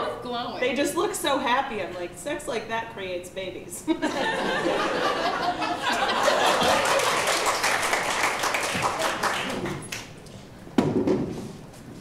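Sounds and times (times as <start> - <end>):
audience laughing: 3.9 - 7.6
audience applauding: 5.8 - 10.2.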